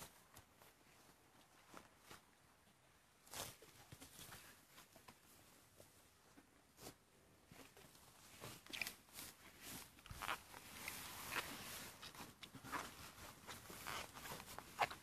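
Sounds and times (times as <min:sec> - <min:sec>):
faint rustles and scuffs: 0:00.0 - 0:15.0.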